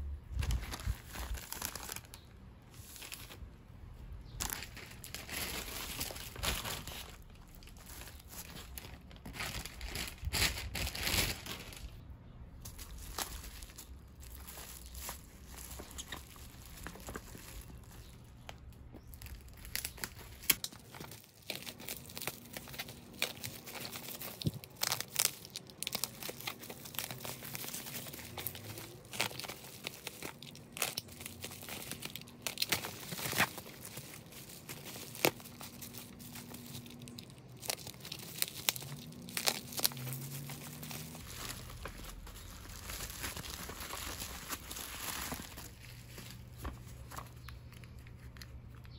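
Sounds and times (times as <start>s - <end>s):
bubble wrap crackling: 0.2s - 3.6s, 4.2s - 48.9s
packing tape tearing: 19.2s - 48.9s.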